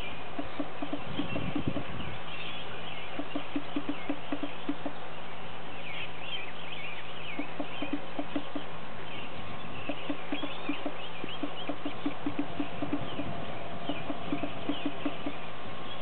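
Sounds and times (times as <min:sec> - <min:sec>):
birds singing: 0:00.0 - 0:16.0
horse hoofbeats on turf: 0:09.8 - 0:15.4.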